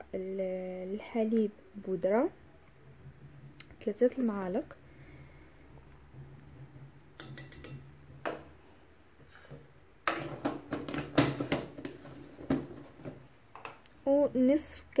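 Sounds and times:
containers knocking and clinking: 6.0 - 8.6, 9.3 - 13.8
spoon clicks and taps: 7.2 - 7.9.

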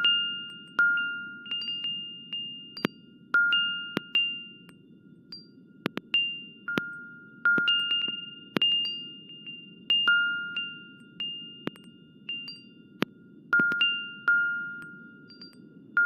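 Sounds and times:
synthesized chime pings: 0.0 - 15.8
steady low noise bed: 0.0 - 16.0
sharp clicks: 5.8 - 9.0.

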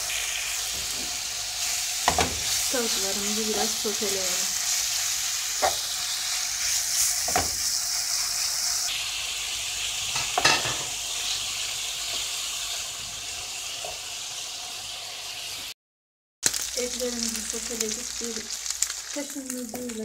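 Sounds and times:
chicken sizzling in frying pan: 0.0 - 15.8, 16.4 - 20.0.

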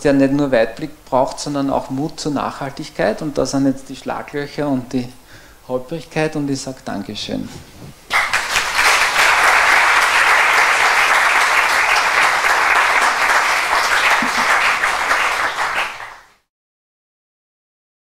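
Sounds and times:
audience applauding: 8.1 - 16.4.

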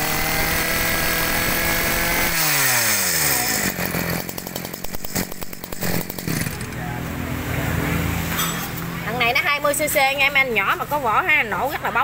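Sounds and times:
brush-cutter engine revving: 0.0 - 6.8.

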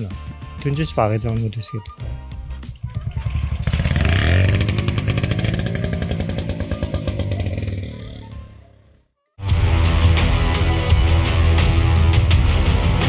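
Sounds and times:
motorcycle engine buzzing: 2.4 - 8.8.

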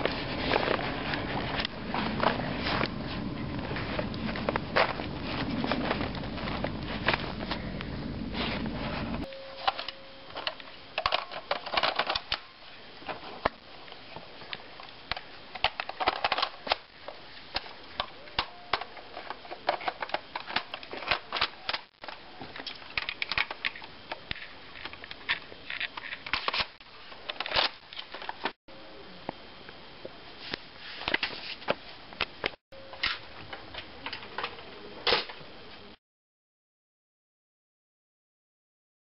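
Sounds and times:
plastic toy clicks and rattles: 9.7 - 12.5, 15.1 - 16.8, 18.4 - 26.7.

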